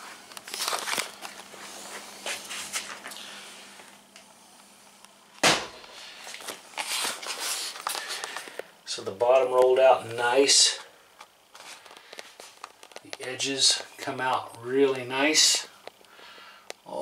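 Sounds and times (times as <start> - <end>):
footsteps: 0.0 - 3.2
sharp knock: 5.4 - 5.8
handling clicks and rustles: 11.2 - 14.7.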